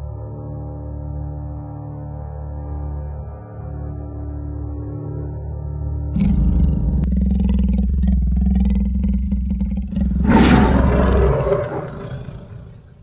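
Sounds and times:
big cat growling and roaring: 0:06.2 - 0:13.0.

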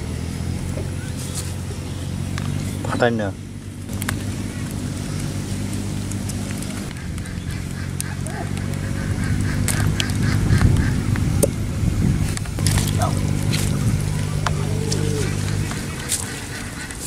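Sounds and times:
steady low hum: 0:00.0 - 0:17.0
quack-like animal calls: 0:06.9 - 0:11.1, 0:14.1 - 0:17.0.

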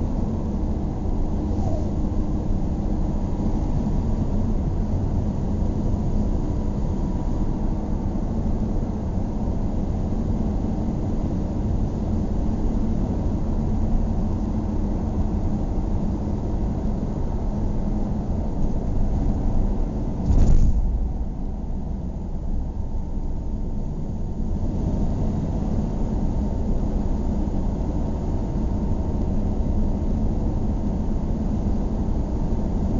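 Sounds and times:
car engine and tyre rumble: 0:00.0 - 0:32.9
loud thump: 0:20.2 - 0:21.2.

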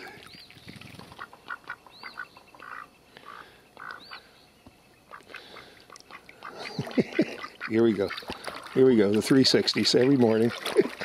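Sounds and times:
small clicks and splashes: 0:08.0 - 0:11.0.

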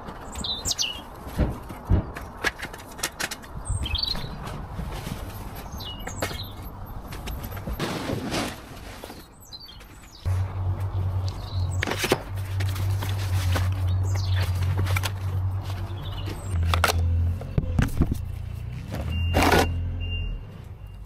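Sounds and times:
small birds chirping: 0:00.1 - 0:01.2, 0:03.5 - 0:04.4, 0:05.6 - 0:06.8, 0:09.2 - 0:13.1, 0:13.7 - 0:14.7, 0:15.7 - 0:16.6.

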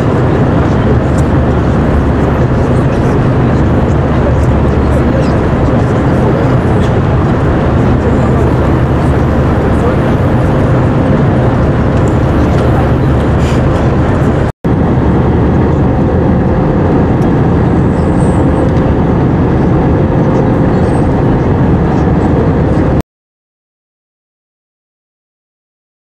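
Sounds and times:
airliner cabin roar: 0:00.0 - 0:23.0.

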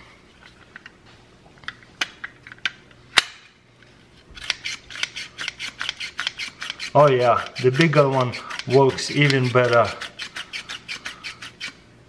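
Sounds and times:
cheese grating rasps: 0:04.4 - 0:11.8.

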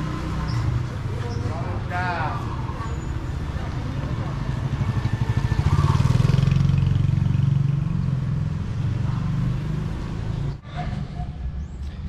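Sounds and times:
motor scooter engine passing: 0:02.4 - 0:10.6.

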